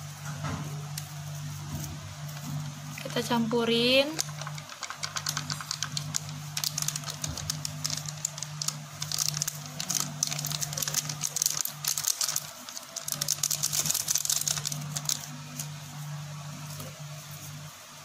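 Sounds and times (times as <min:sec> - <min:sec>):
plastic sachet crinkling: 0:04.0 - 0:15.7.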